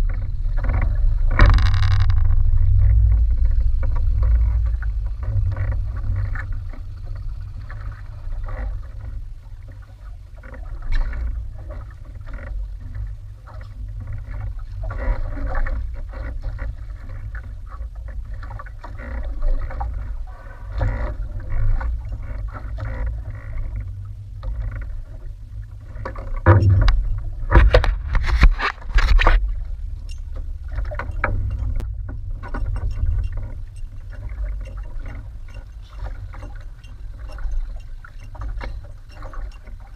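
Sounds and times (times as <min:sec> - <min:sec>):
wind buffeting microphone: 0:00.0 - 0:09.8, 0:19.3 - 0:39.9
water slapping against boat hull: 0:00.0 - 0:39.9.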